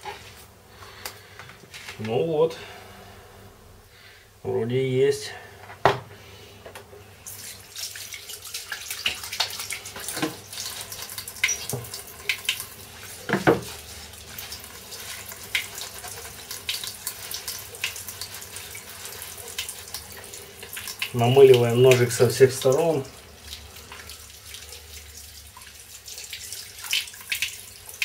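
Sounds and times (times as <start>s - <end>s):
tap water running into sink: 7.3s - 28.0s
splashes and small knocks: 7.4s - 21.1s.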